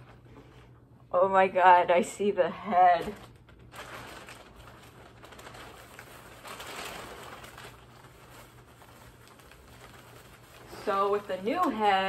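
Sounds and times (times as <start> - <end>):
plastic packaging rustling: 2.6 - 12.0.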